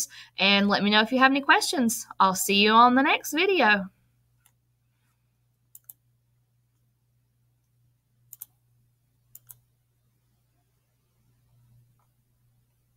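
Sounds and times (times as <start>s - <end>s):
faint steady hum: 0.0s - 12.9s
computer mouse button clicks: 9.3s - 9.6s.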